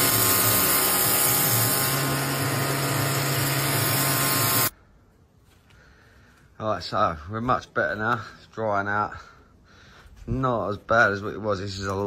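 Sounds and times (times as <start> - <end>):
pressure washer water hiss: 0.0 - 4.7.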